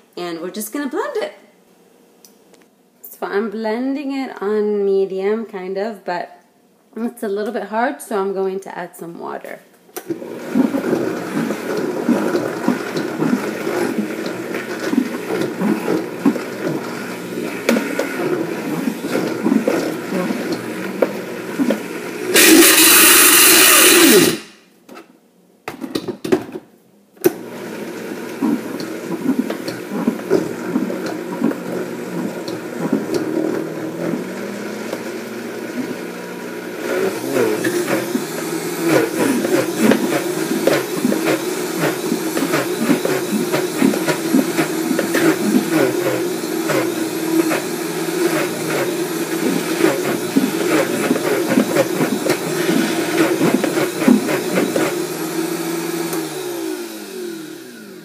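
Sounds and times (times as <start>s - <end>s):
blender running: 10.0s - 24.6s, 27.3s - 58.0s.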